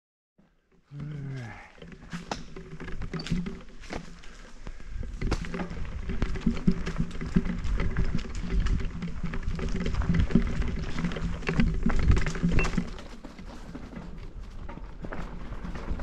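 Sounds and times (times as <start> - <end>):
bike clicks and rattles: 0.4 - 16.0
bike tyres rolling on dirt: 0.4 - 16.0.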